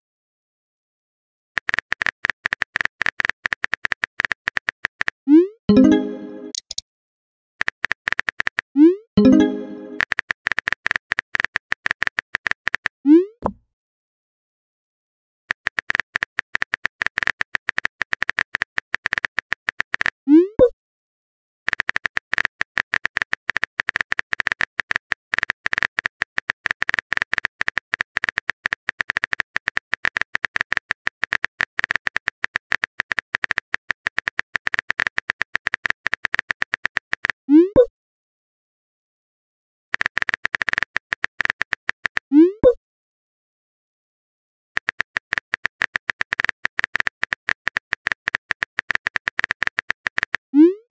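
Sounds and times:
rising message sent pop: 5.7s - 6.7s, 9.2s - 10.0s
phone keyboard typing clicks: 5.7s - 6.8s, 40.0s - 42.2s, 44.8s - 50.4s.

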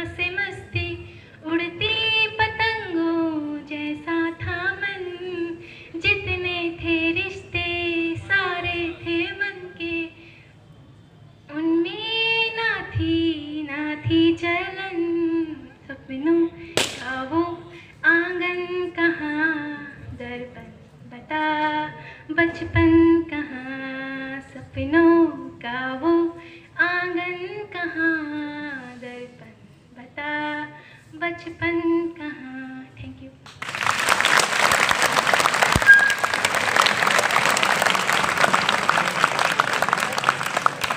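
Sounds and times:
sharp pop: 16.8s - 17.3s
children applauding: 33.6s - 40.9s.

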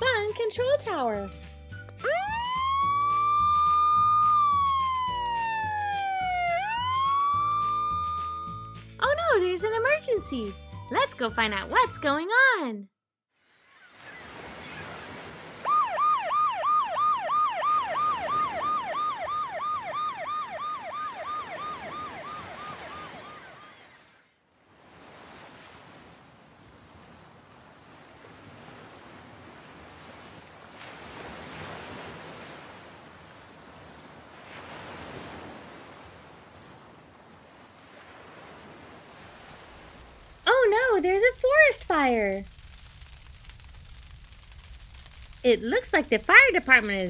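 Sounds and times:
emergency siren yelping: 2.0s - 8.8s, 15.6s - 24.3s
ocean waves: 13.4s - 47.0s.

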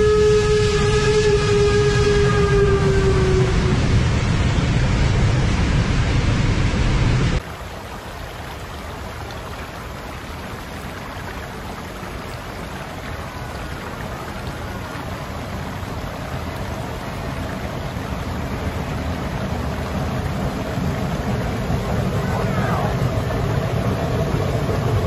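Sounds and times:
steam train: 0.0s - 7.3s, 15.2s - 25.0s
creek flowing over rocks: 7.4s - 25.0s.

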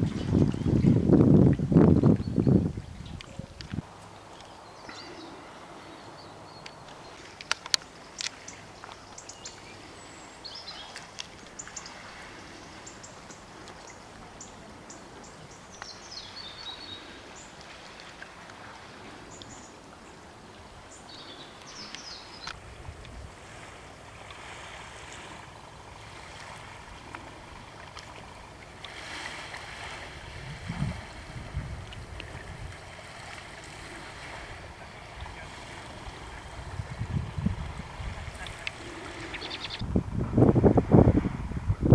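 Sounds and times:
wind buffeting microphone: 0.0s - 3.9s, 21.2s - 41.9s
faint outdoor hiss: 0.0s - 41.2s
small birds chirping: 2.0s - 17.6s, 20.9s - 22.6s, 38.2s - 39.8s.

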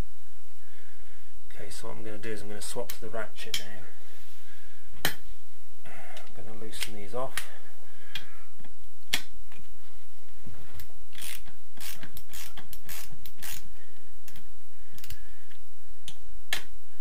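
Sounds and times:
ratchet clicking: 11.2s - 13.7s.

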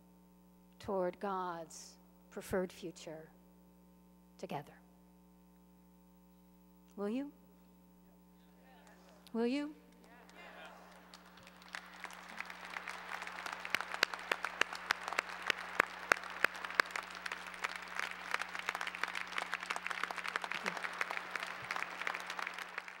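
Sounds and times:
large audience applauding: 9.9s - 23.0s.

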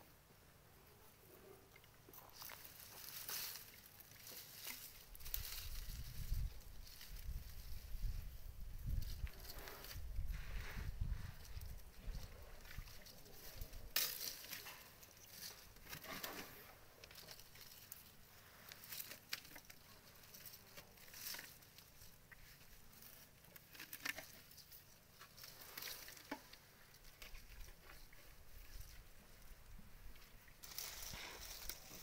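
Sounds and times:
dry branches rustling and crackling: 2.1s - 32.0s.

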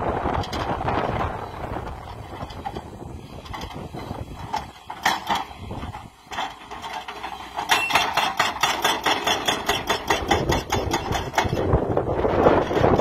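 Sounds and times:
hydraulic breaker hammering stone: 7.6s - 11.8s.

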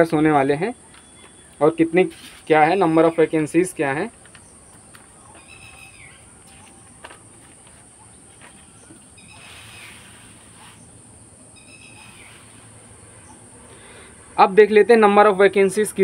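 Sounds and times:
bird chirping: 0.0s - 14.4s
paper rustling: 2.0s - 2.8s
insect drone: 7.0s - 16.0s.

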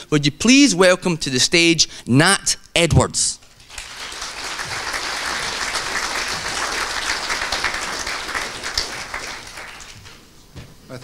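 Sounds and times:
audience applauding: 3.6s - 10.3s.

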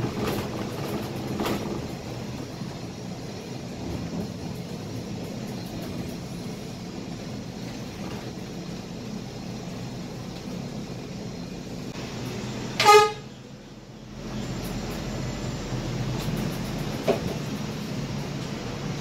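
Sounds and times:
bus engine and road rumble: 0.0s - 19.0s
vehicle horn toot: 12.8s - 13.4s.

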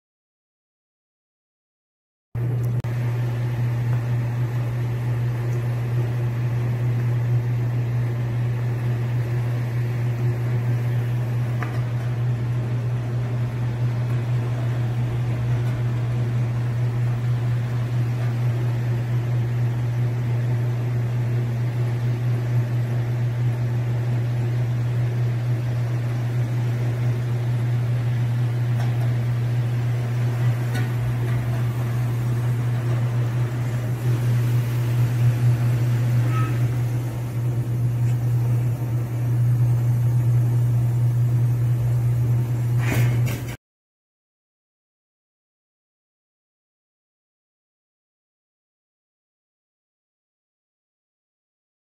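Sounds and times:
washing machine motor hum: 2.4s - 43.6s.

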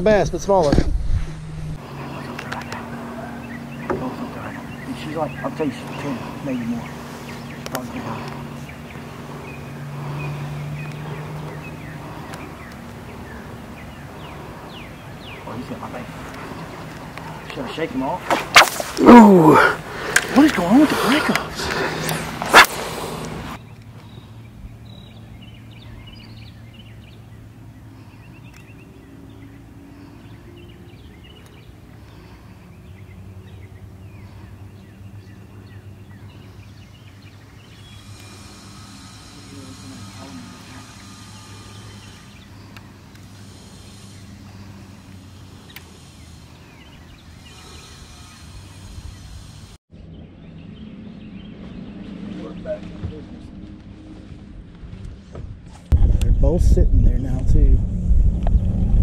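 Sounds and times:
electric motor humming: 1.4s - 18.0s, 37.1s - 49.8s
birds chirping: 1.4s - 55.3s
low mechanical hum: 21.3s - 49.8s.

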